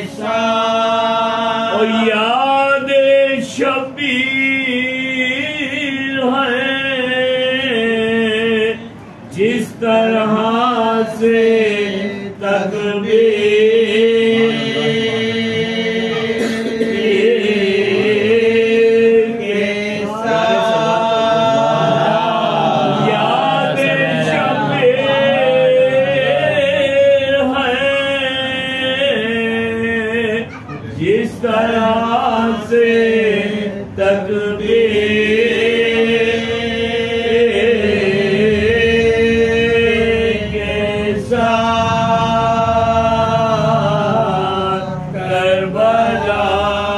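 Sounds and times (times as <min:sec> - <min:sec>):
lead male voice chanting: 0:13.4 - 0:18.6.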